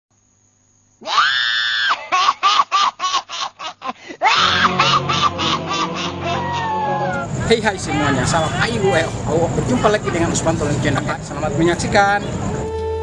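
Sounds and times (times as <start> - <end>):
witch shrieking: 1.0 - 2.7, 4.2 - 8.9
cackling laugh: 1.7 - 7.2, 10.8 - 11.3
film music with low drone: 4.4 - 9.7.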